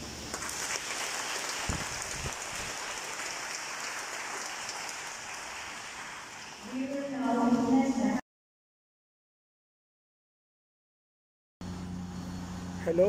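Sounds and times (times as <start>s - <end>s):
congregation applauding: 0.3s - 7.0s.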